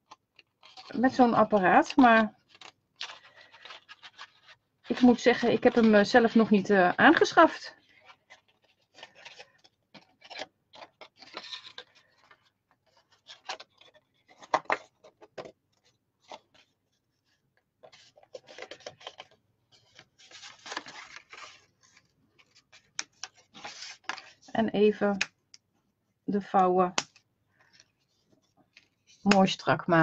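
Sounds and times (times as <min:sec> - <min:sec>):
paper rustling: 0:00.0 - 0:01.0, 0:01.9 - 0:24.5
card stock being folded: 0:00.0 - 0:24.5.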